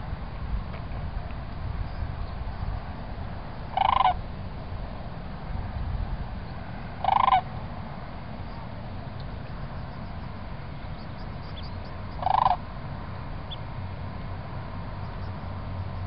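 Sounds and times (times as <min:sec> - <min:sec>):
steady low rumble: 0:00.0 - 0:16.0
crane calling: 0:03.7 - 0:04.2, 0:07.0 - 0:07.6, 0:09.3 - 0:12.7.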